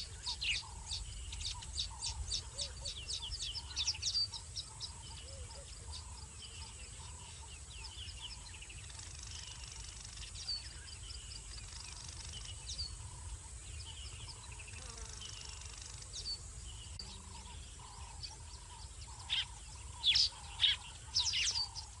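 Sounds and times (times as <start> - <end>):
wild birds chirping and calling: 0.0 - 22.0.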